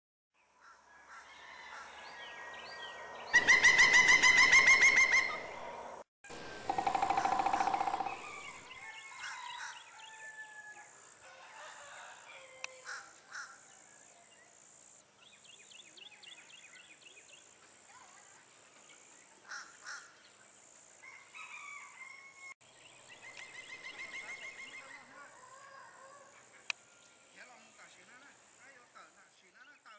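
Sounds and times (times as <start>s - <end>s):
bird chirps: 3.3s - 8.7s
woodpecker calling: 3.3s - 8.8s
steady high hiss: 6.3s - 8.6s.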